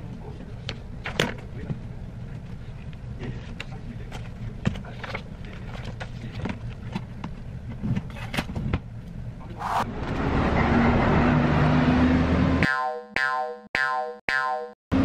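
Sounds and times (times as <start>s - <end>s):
vehicle passing close: 9.5s - 12.6s.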